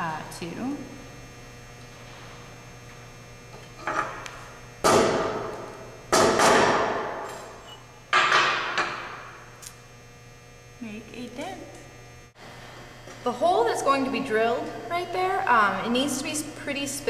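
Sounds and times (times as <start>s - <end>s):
hammer striking nail on metal: 6.1s - 7.1s.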